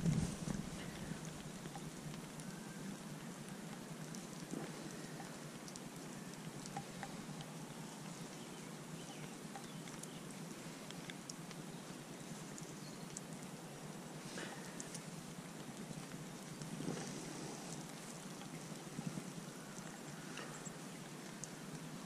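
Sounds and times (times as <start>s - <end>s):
light rain pattering: 0.0s - 22.0s.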